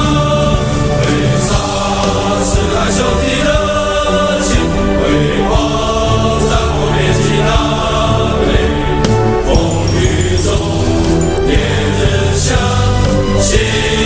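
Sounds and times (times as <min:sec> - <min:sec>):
instrumental backing: 0:00.0 - 0:02.4, 0:09.5 - 0:13.6
chorus singing: 0:00.0 - 0:14.0.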